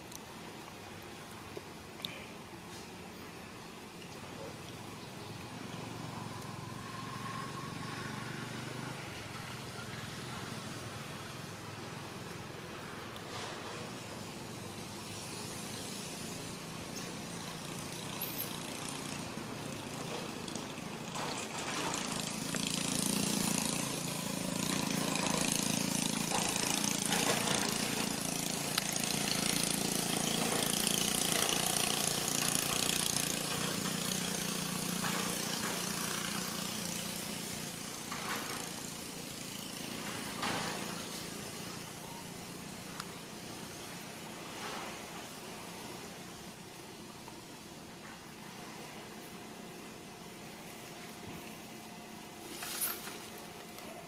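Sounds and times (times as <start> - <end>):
steady outdoor hiss: 0.0 - 54.0
motor engine running: 5.2 - 46.3.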